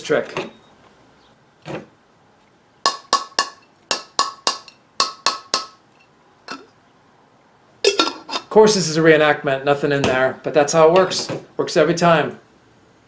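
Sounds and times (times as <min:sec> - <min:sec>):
knife handle knocking metal lid: 0:02.9 - 0:05.8.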